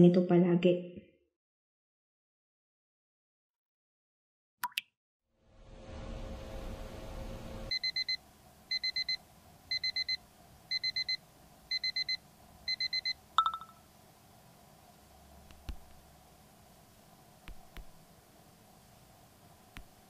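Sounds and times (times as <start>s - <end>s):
ceiling fan whirring: 5.6s - 20.0s
phone alarm beeping: 7.7s - 13.8s
phone click: 13.4s - 13.7s.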